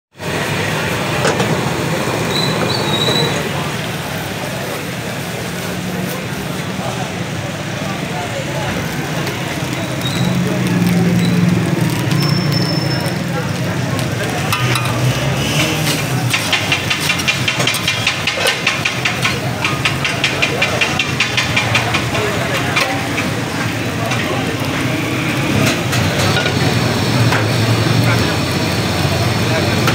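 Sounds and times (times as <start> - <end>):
frying hiss: 0.2 - 29.9
gas burner roaring: 0.2 - 29.9
noodles sizzling: 8.0 - 29.9
metal spatula scraping a wok: 14.5 - 19.8.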